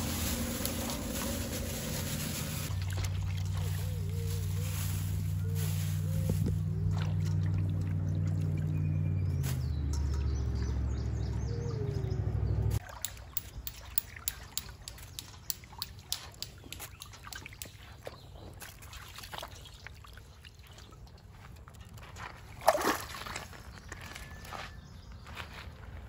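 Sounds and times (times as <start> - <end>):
water sloshing in steel bowl: 1.1 - 4.3, 6.7 - 8.9.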